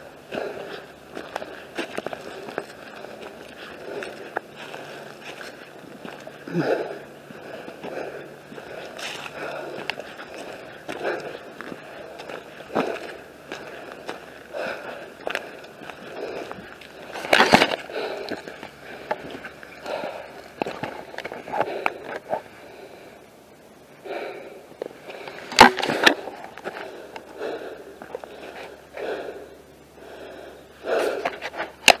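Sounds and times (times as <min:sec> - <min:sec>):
footsteps crunching dry leaves: 0:00.3 - 0:21.8.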